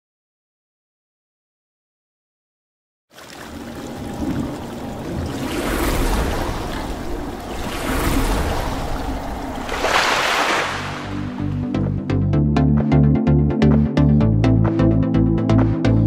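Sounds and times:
water splashing and rushing: 3.1 - 11.9
low rumble: 3.6 - 12.2
low electronic music beat: 11.2 - 16.0.

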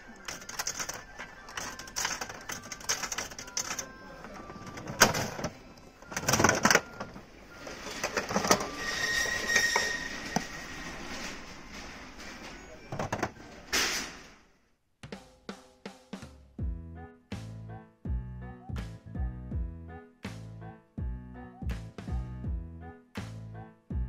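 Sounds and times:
coins clicking into a slot: 0.2 - 5.5, 6.1 - 7.1.

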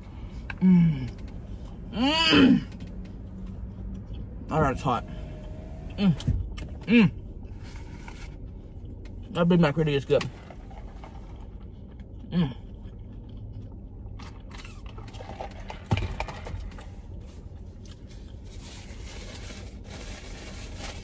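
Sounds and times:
steady low hum: 0.0 - 20.9
chewing: 11.2 - 15.7
paper packaging rustling: 18.0 - 21.0.

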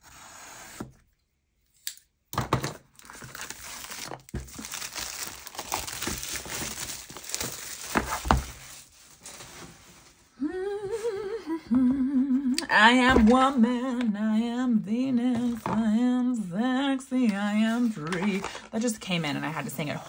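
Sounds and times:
plastic shrink wrap crinkling: 2.8 - 10.4, 17.8 - 19.8
plastic wrap snapping: 3.0 - 8.9.

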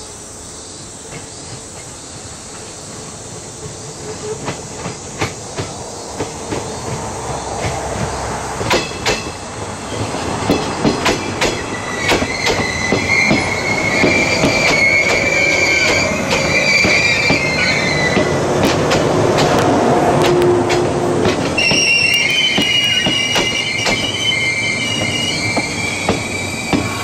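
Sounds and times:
train wheels clacking over rail joints: 3.4 - 27.0
high wheel squeal: 11.2 - 18.5, 21.5 - 27.0.

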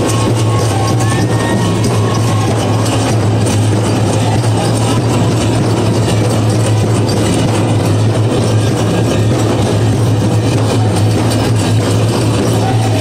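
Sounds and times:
big drum steady beat: 0.0 - 13.0.

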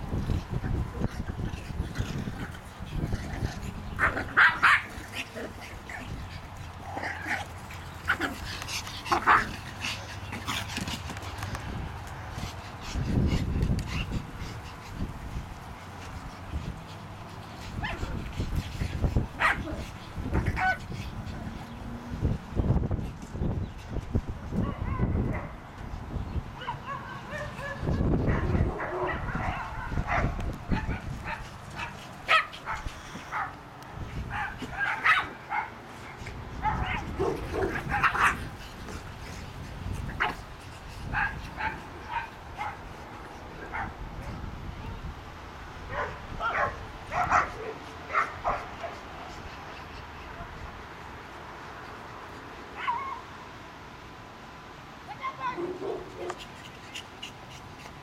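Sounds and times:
small dogs barking and yipping: 0.2 - 11.8, 16.0 - 21.9, 24.5 - 25.6, 26.6 - 44.5, 45.8 - 53.4, 55.1 - 58.0
dogs yipping and whining: 17.7 - 21.8.

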